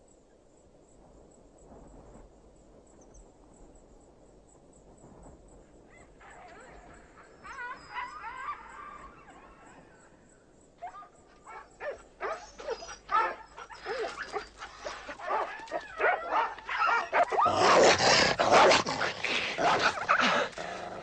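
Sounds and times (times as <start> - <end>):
dogs yelping and whimpering: 6.2 - 9.7, 10.8 - 17.9.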